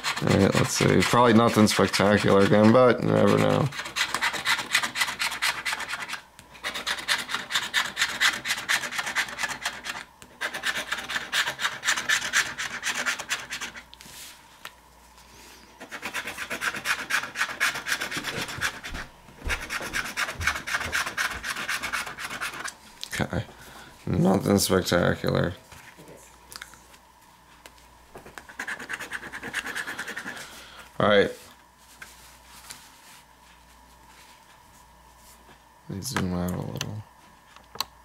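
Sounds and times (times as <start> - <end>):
lottery ticket being scratched: 0.0 - 13.8, 15.8 - 18.9, 19.6 - 22.7, 28.4 - 30.5.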